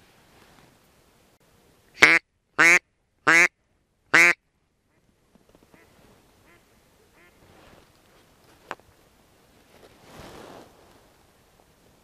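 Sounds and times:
duck quacking: 2.0 - 3.5, 4.1 - 4.4, 5.8 - 7.4.

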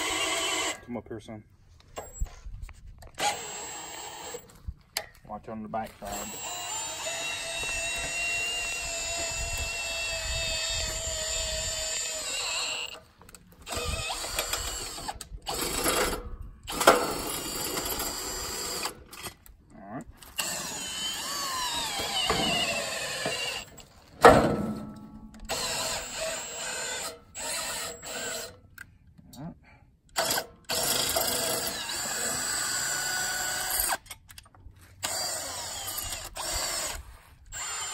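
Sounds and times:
cordless drill motor whining: 0.0 - 0.8, 3.0 - 4.7, 6.0 - 19.5, 20.3 - 23.9, 25.5 - 28.6, 30.2 - 34.0, 35.0 - 37.9.

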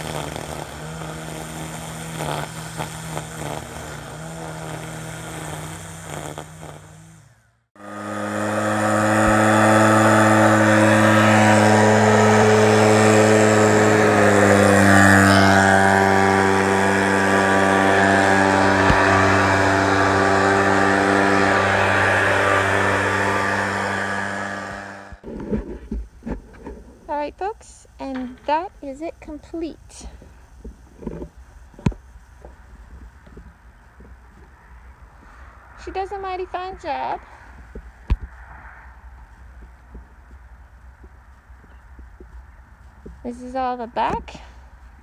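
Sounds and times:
small engine running: 0.0 - 27.4, 35.1 - 38.4
string trimmer whirring: 0.0 - 38.4, 39.0 - 45.0.

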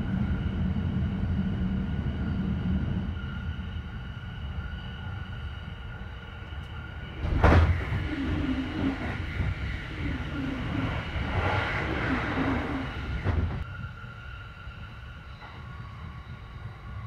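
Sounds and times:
passing train rush: 0.0 - 17.0
train running rumble: 0.0 - 17.0.

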